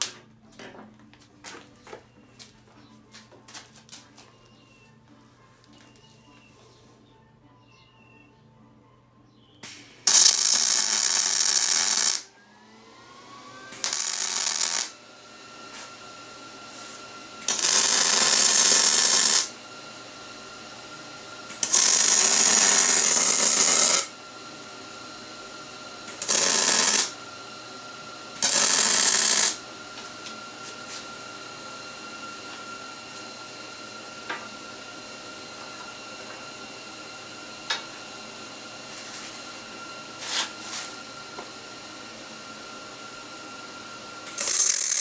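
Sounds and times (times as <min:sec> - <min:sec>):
welding arc sizzle: 0:09.6 - 0:12.3, 0:13.7 - 0:15.0, 0:16.7 - 0:19.6, 0:21.4 - 0:24.2, 0:26.0 - 0:27.2, 0:28.4 - 0:31.0, 0:44.2 - 0:45.0.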